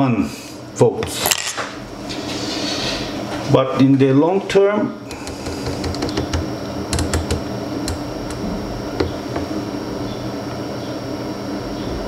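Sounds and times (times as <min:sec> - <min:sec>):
low hum: 0:05.0 - 0:12.0.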